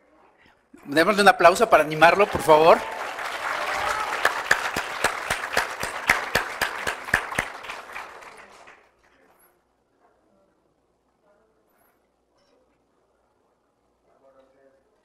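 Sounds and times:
audience applauding: 1.4s - 9.0s
sharp individual claps: 2.0s - 8.8s.

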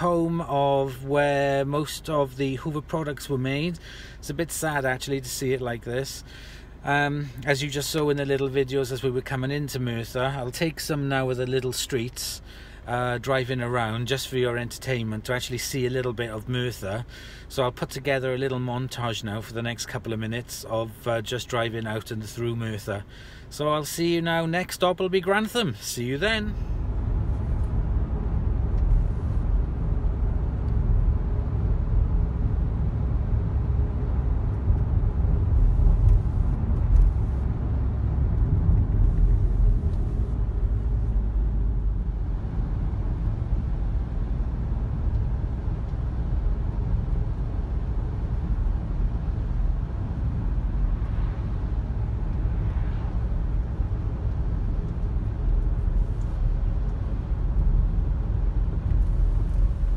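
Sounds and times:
car engine and road noise: 0.0s - 59.9s.

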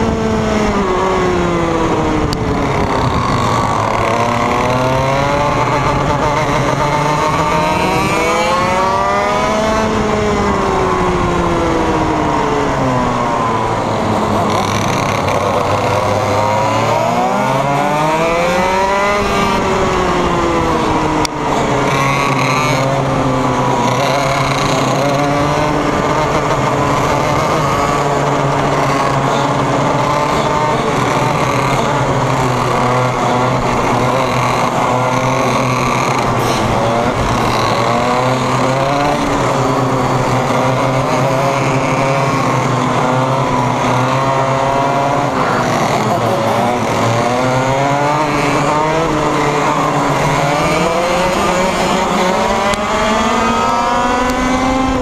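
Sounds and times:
kart engine revving: 0.0s - 55.0s
other kart engines: 0.0s - 55.0s.

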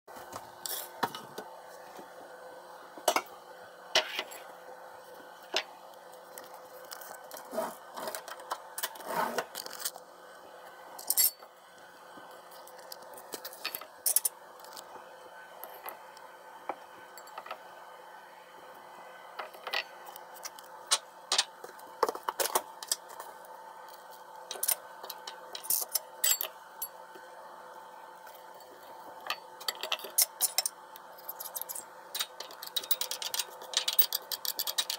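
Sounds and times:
utensils and dishes clinking: 24.5s - 26.9s, 29.3s - 34.9s.

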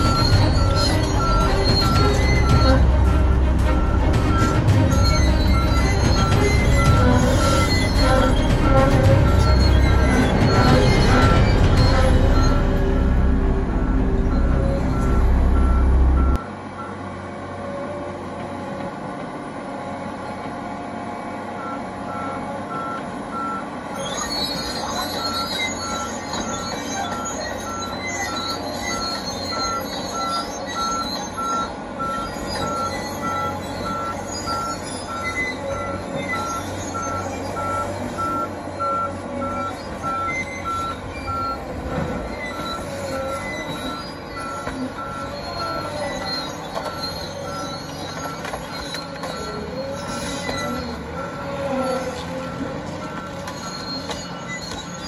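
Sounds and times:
high metallic squealing: 0.0s - 16.4s, 22.1s - 55.0s
loud low rumble: 0.0s - 16.4s
warning alarm beeping: 0.0s - 16.4s
loader engine running: 0.0s - 55.0s.

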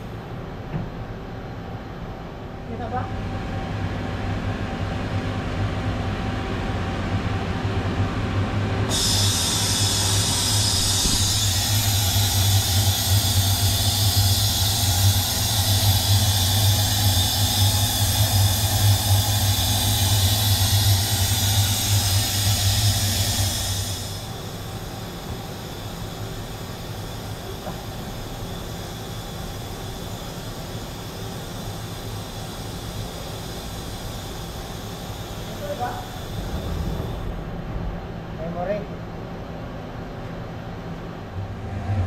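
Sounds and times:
lathe machine hum: 3.1s - 42.0s
loud high hiss: 8.9s - 37.4s.

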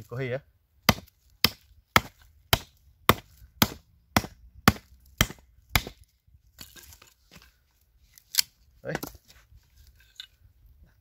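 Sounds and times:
axe chopping wood: 0.8s - 6.8s.

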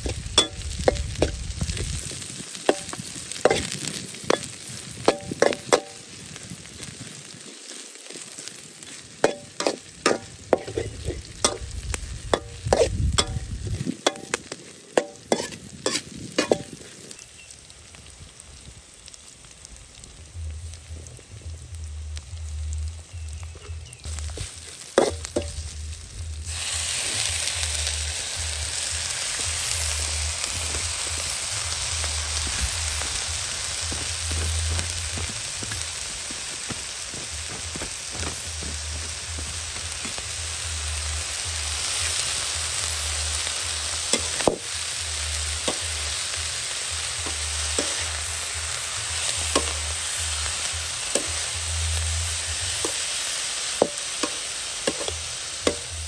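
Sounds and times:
food sizzling in a wok: 0.0s - 56.0s
metal spatula scraping pan: 2.7s - 6.0s, 8.9s - 11.8s, 12.4s - 13.5s, 15.0s - 16.8s, 24.4s - 25.5s, 47.2s - 48.2s.

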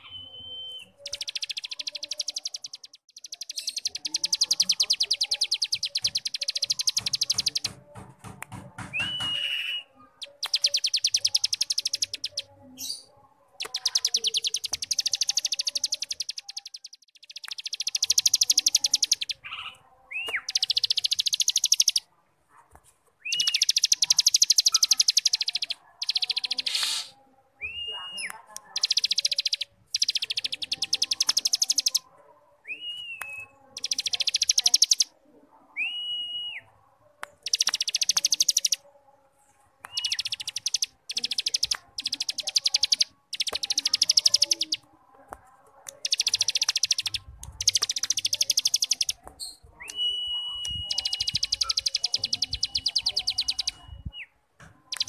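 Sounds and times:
bird whistled notes: 9.0s - 12.3s, 23.3s - 32.0s, 39.9s - 44.7s, 49.8s - 54.3s.

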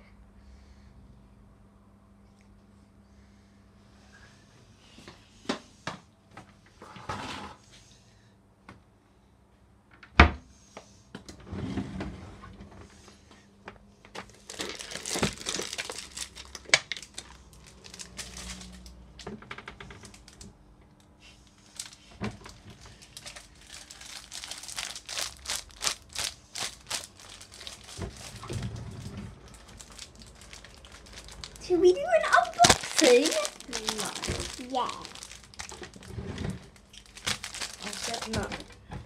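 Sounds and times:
paper packaging crinkling: 14.2s - 19.0s, 21.6s - 38.8s.

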